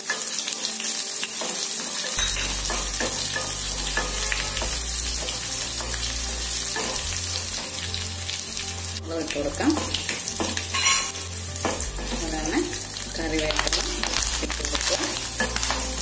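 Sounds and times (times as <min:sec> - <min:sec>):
onion sizzling in oil: 0:00.0 - 0:16.0.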